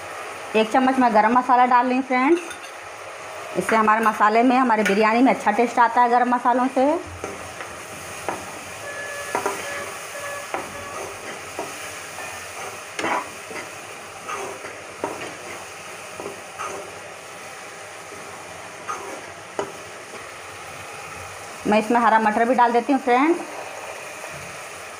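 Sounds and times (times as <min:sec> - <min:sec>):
spices sizzling in oil: 0:00.0 - 0:24.9
metal spoon scraping a pan: 0:08.3 - 0:17.0, 0:18.8 - 0:20.2.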